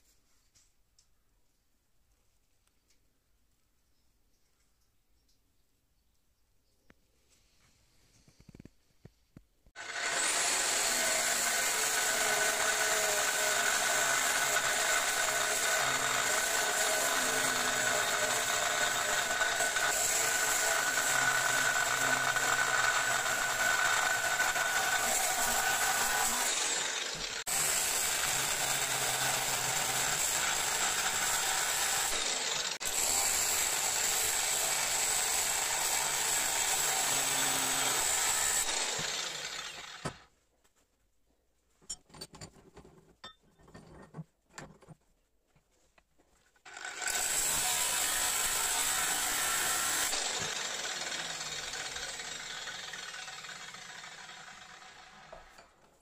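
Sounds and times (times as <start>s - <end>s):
angle grinder cutting metal: 9.8s - 40.2s, 46.7s - 55.8s.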